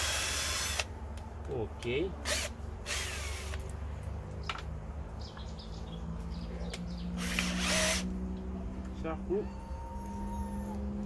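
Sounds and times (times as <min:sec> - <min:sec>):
cordless drill boring into wood: 0:00.0 - 0:00.9, 0:02.2 - 0:03.6, 0:07.2 - 0:08.1.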